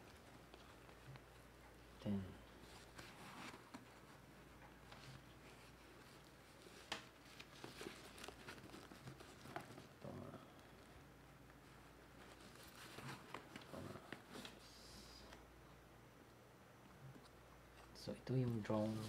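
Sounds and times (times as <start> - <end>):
fabric bag and packaging rustling: 4.9 - 10.1.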